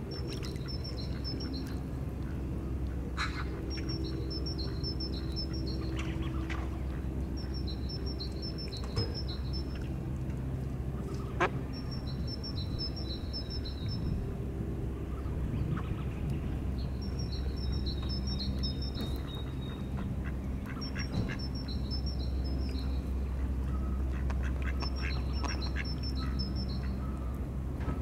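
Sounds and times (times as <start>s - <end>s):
steady low rumble: 0.0s - 28.0s
ducks quacking: 11.0s - 11.8s, 18.5s - 21.8s, 24.1s - 27.2s.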